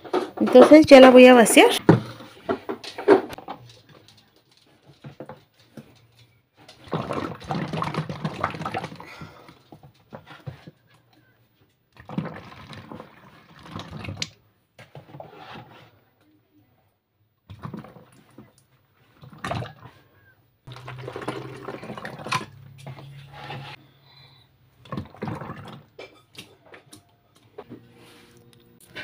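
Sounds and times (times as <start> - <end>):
liquid soap pouring into bottle: 12.0 - 14.4, 20.7 - 22.6, 24.8 - 25.9.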